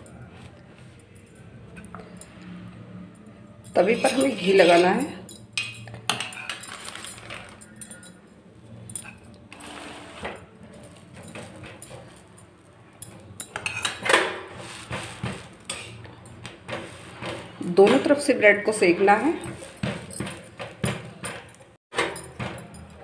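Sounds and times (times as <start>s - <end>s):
metal spoon scraping a griddle: 3.6s - 8.2s, 8.9s - 18.2s.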